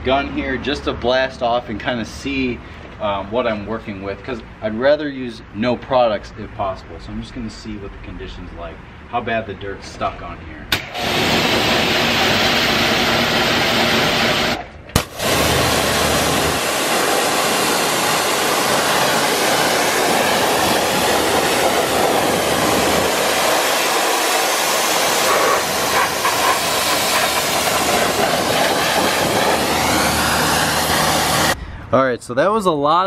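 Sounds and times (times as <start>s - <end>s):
pressure washer spraying water: 10.7s - 31.6s.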